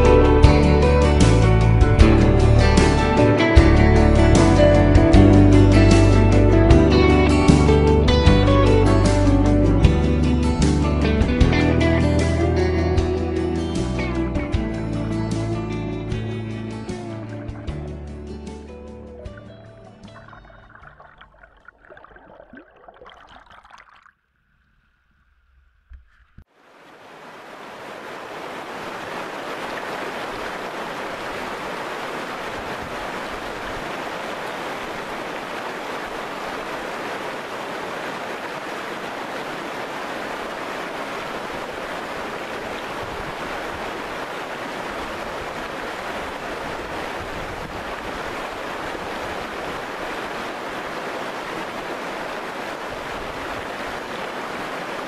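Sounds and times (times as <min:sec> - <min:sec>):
river rushing over stones: 0:26.5 - 0:55.0.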